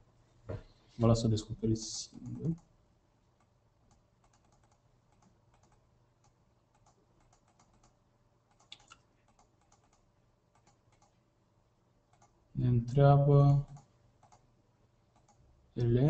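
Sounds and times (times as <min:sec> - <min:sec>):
faint low hum: 0:00.0 - 0:16.0
keyboard typing: 0:03.4 - 0:11.2, 0:13.6 - 0:14.4, 0:15.1 - 0:15.4.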